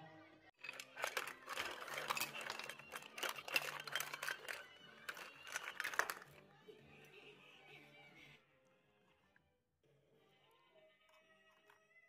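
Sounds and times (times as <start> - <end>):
shells clattering in ceramic bowl: 0.6 - 6.4.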